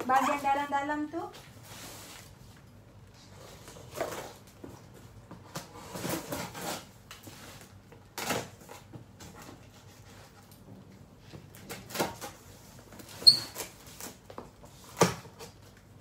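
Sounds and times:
cardboard boxes scraping and knocking: 3.4 - 7.8.

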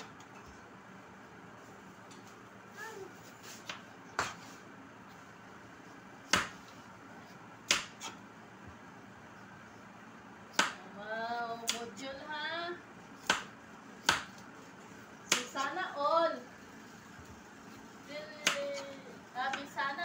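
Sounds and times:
high voice: 2.7 - 3.3.

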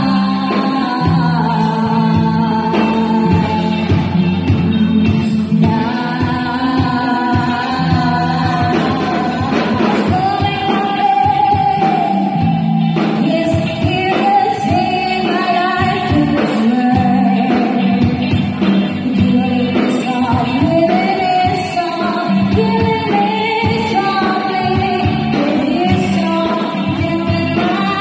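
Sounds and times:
bass guitar: 0.0 - 28.0
electric guitar: 0.0 - 28.0
woman singing: 0.0 - 28.0.

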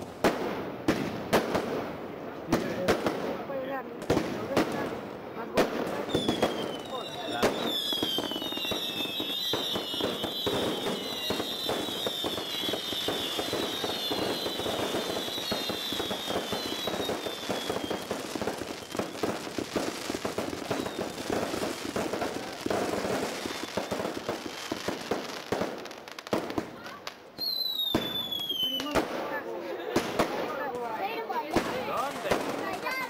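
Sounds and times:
fireworks crackling and banging: 0.0 - 33.0
firework whistles sliding down: 6.1 - 19.4, 20.6 - 21.3, 27.4 - 29.0.

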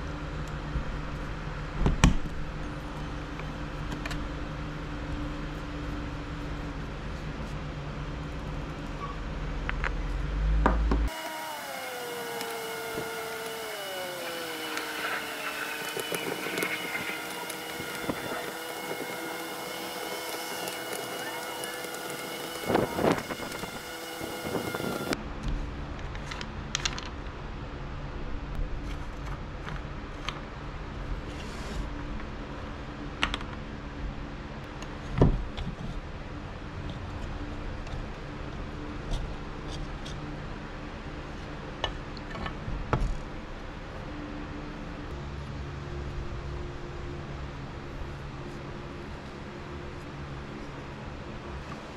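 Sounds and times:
steady low hum: 0.0 - 51.9
screwdriver clicking and scraping: 12.4 - 23.8.

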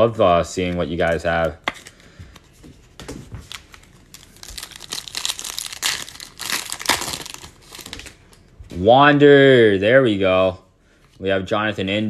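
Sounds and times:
wrapper crinkling and tearing: 3.4 - 8.4.

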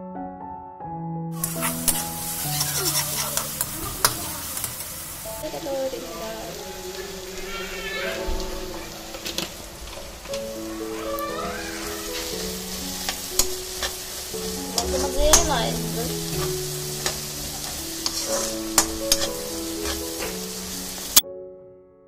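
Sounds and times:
soft background music: 0.0 - 4.0, 5.2 - 22.0
metal spatula scraping a pan: 1.4 - 4.9, 11.8 - 21.2
onions sizzling in hot oil: 1.4 - 21.2.

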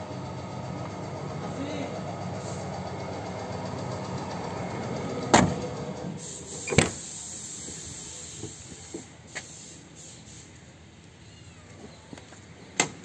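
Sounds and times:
car doors shutting with thuds: 5.2 - 5.8, 6.5 - 7.8.

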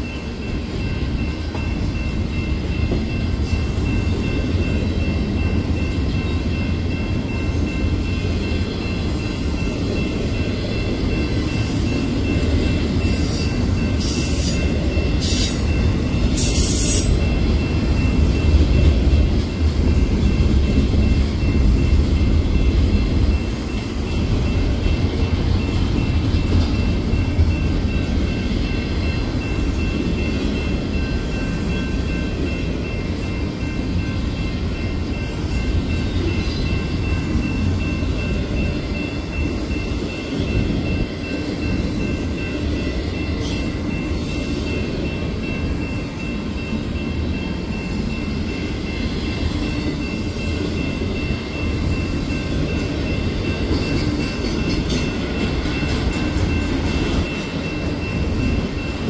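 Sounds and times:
train wheels rumbling on rail: 0.0 - 59.0.

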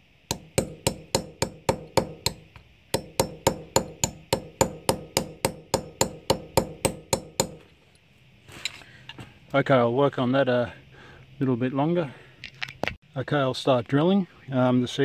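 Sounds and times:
hammer tapping nail on brick: 0.3 - 7.6.

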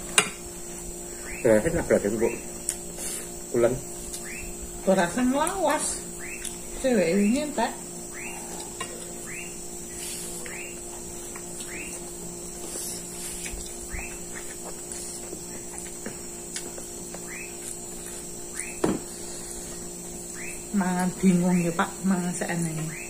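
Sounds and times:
insects trilling: 0.0 - 23.0
low steady hum: 0.0 - 23.0.

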